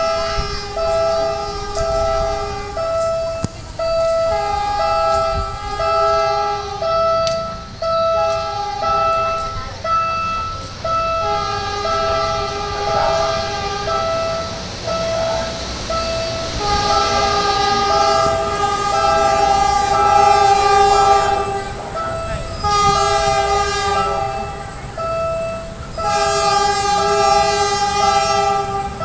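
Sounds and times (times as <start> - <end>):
beeping warning tone: 0.0 - 29.0
train horn blasts: 0.0 - 29.0.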